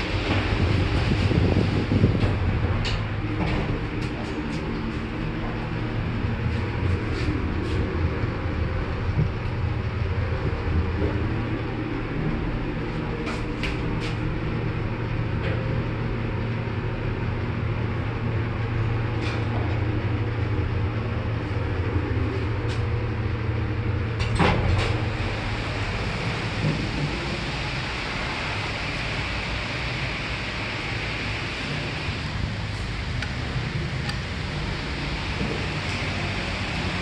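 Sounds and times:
lift car hum: 0.0s - 37.0s
lift car stopping clunk: 23.8s - 32.9s.

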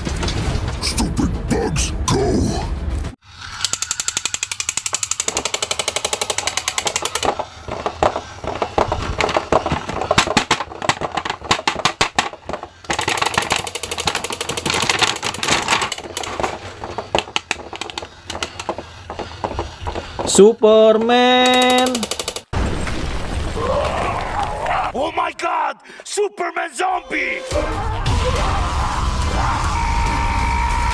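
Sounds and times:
toy motor clicking rapidly: 3.3s - 10.4s, 12.9s - 20.3s, 21.4s - 22.5s
plastic blister pack crackling: 5.2s - 20.0s.

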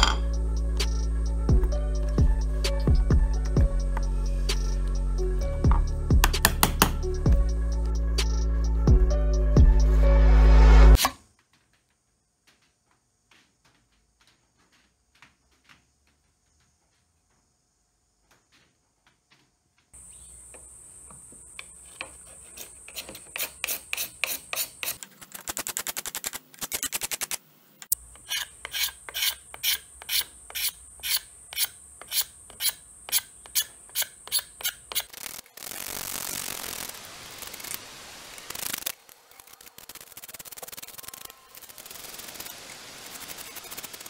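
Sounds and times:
card scraper scraping wood: 21.6s - 27.3s, 28.2s - 36.8s.

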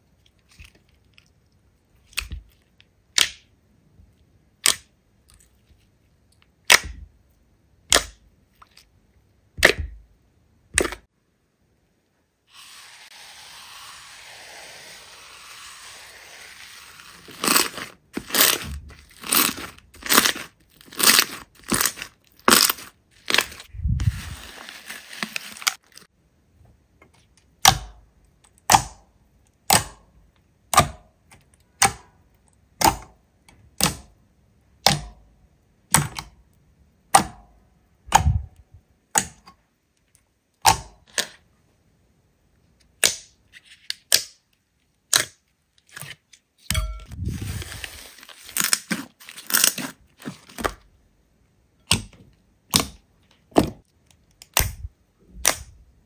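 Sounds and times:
slime crackling: 15.8s - 26.0s.

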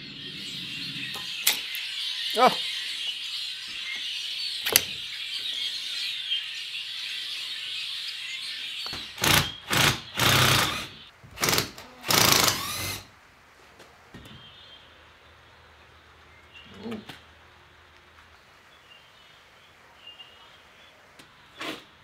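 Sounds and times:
birds twittering: 0.0s - 11.1s, 15.8s - 17.4s
power tool bursts: 9.2s - 13.1s.

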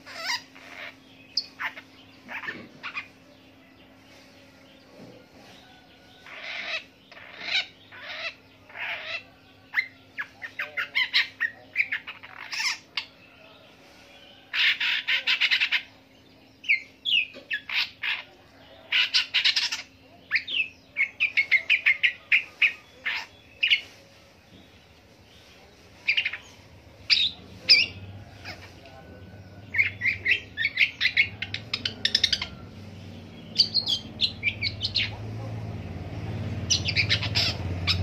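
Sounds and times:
shrike singing: 26.0s - 38.0s.

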